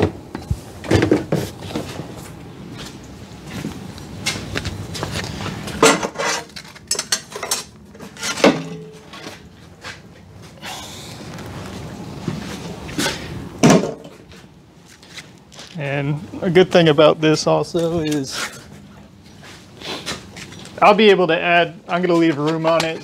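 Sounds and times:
steel bars and tools clanking: 5.8 - 9.4.

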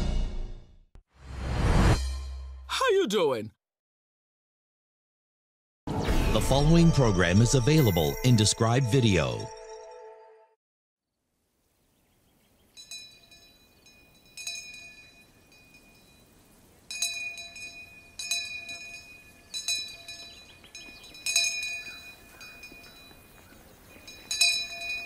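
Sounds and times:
small metal bell ringing: 12.8 - 16.3, 16.9 - 25.0.

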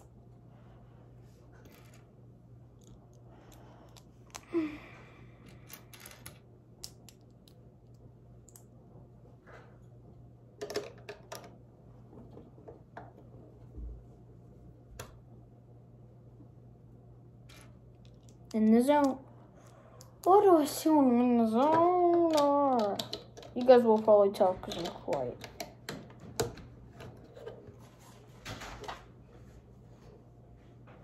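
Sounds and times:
plastic bricks clicking: 21.6 - 24.1.

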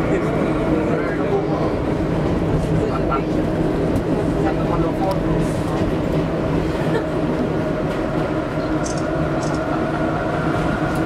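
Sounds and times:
subway car rumbling on track: 0.0 - 11.0.

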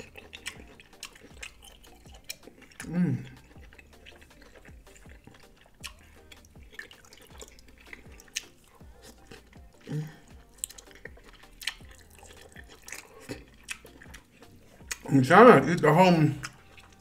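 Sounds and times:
wet chewing and lip smacks: 0.0 - 15.3, 16.2 - 17.0
person humming low: 2.8 - 3.4, 9.8 - 10.4.

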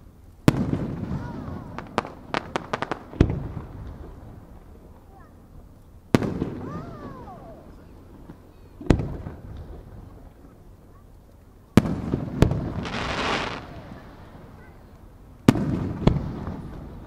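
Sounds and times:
firework crackling hiss: 0.0 - 5.0, 11.1 - 17.0.

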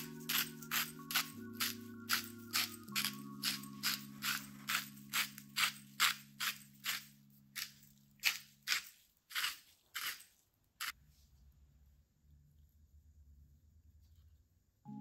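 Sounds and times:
spice container rattling: 0.0 - 10.9.

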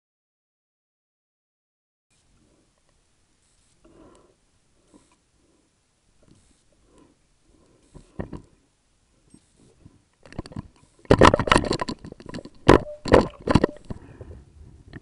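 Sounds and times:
sharp clicks and knocks underwater: 10.2 - 14.0
fish knocking on camera housing: 11.1 - 13.8.

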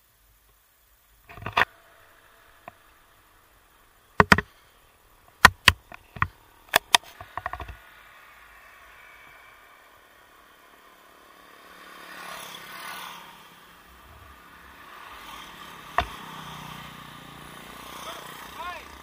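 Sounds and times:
faint steady hiss: 0.0 - 17.7
camera rig knocks and clicks: 4.2 - 4.5, 5.4 - 7.8.

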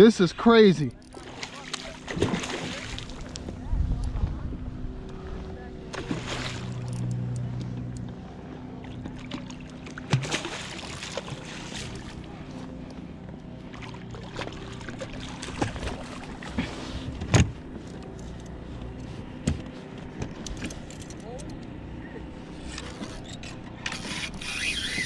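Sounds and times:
gear rattling: 20.2 - 21.6.

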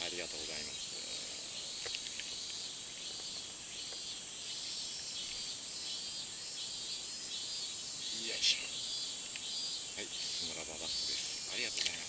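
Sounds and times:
insects buzzing: 0.0 - 12.0
faint clicks: 1.8 - 4.1, 9.2 - 9.5, 11.7 - 12.0.

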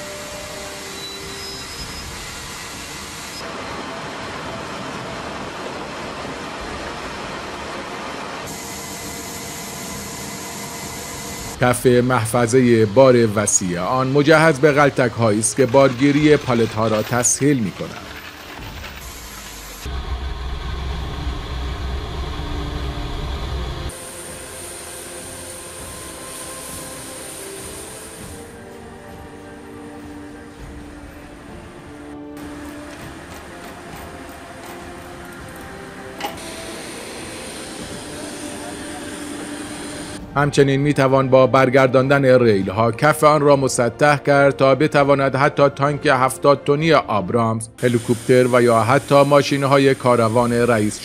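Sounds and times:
high-pitched whine: 0.0 - 40.6
low rumble of machinery: 17.9 - 40.3.

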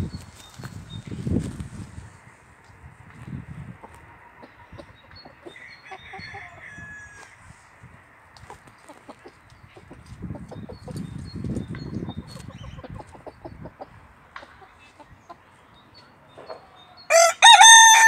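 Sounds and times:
rooster crowing: 5.6 - 7.4, 17.1 - 18.0
chickens pecking and scratching: 8.3 - 15.4
quiet clucks: 8.3 - 16.8.

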